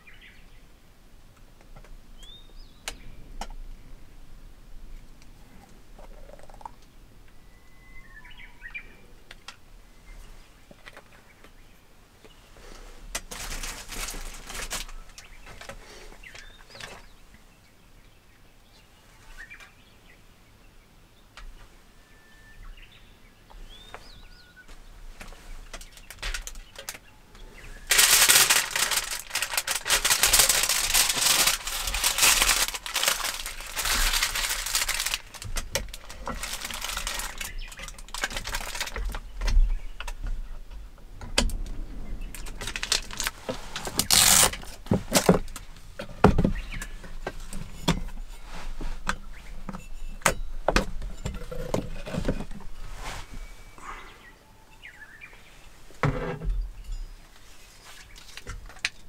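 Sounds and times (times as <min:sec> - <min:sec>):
aluminium foil crinkling: 0:13.3 - 0:15.3, 0:25.7 - 0:27.1, 0:27.8 - 0:39.3, 0:42.4 - 0:45.6, 0:57.9 - 0:59.0.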